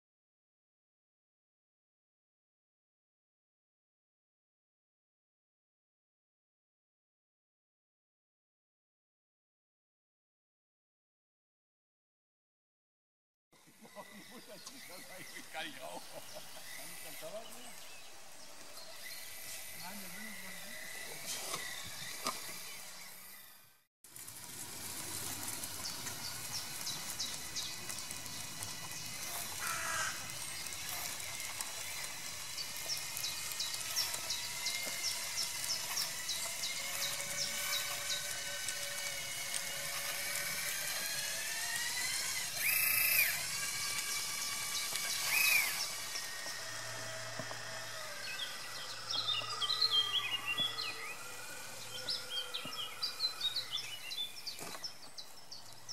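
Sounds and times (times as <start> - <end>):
electric motors whining: 13.6 - 55.9.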